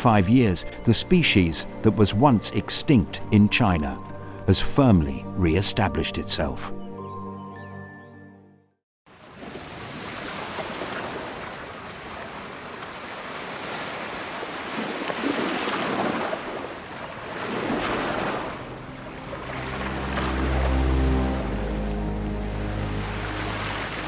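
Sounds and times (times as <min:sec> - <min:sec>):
background music: 0:00.0 - 0:08.8, 0:17.7 - 0:24.0
ocean waves washing in: 0:09.1 - 0:24.0.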